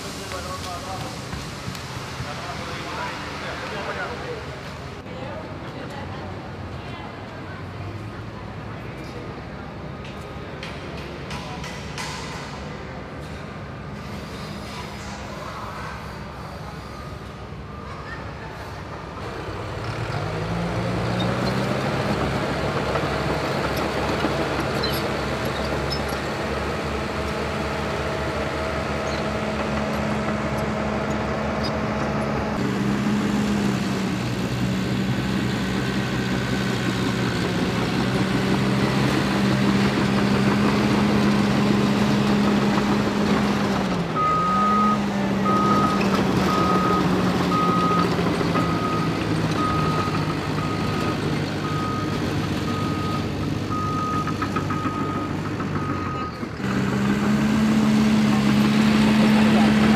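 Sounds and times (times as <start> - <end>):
diesel engine running: 19.1 - 59.9.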